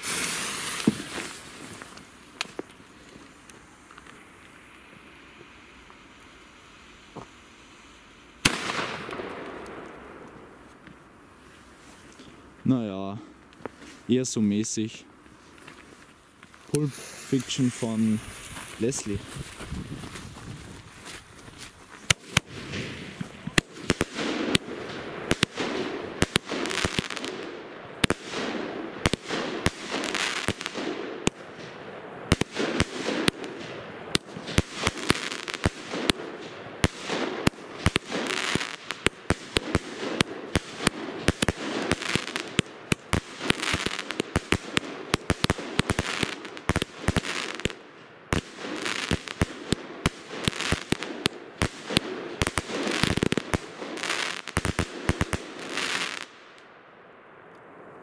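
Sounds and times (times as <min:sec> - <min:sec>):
firework launches hissing: 0:00.0 - 0:09.1, 0:16.7 - 0:20.2
crackling star bursts: 0:00.0 - 0:12.6, 0:13.2 - 0:58.0
sharp firework bangs: 0:08.4 - 0:09.6, 0:32.3 - 0:56.3.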